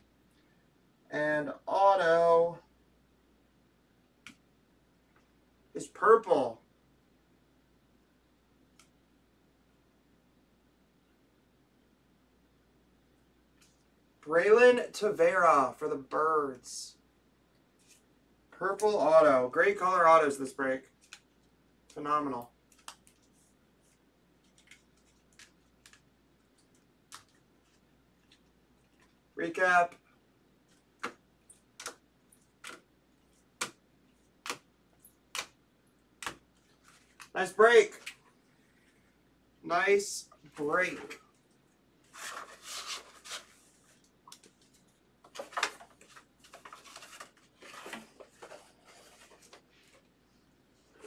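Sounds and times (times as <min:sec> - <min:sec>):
trading cards rustling: 0:22.7 - 0:29.2, 0:36.2 - 0:38.2, 0:42.1 - 0:50.1.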